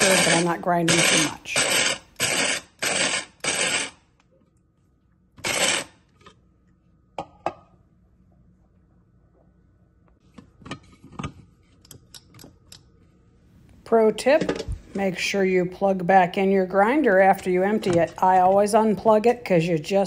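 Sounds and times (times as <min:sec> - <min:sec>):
coffee grinder bursts: 0:00.0 - 0:04.0, 0:05.4 - 0:06.0.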